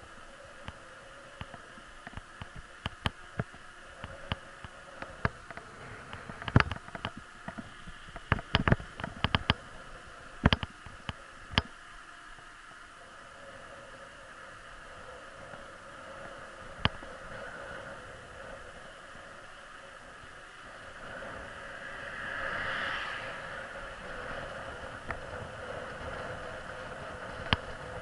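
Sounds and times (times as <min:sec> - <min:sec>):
steady low hiss: 0:00.0 - 0:28.0.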